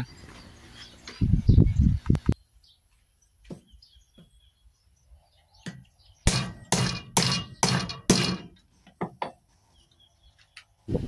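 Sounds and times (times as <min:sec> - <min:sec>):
hammer hitting nail into wood: 0:06.3 - 0:09.2.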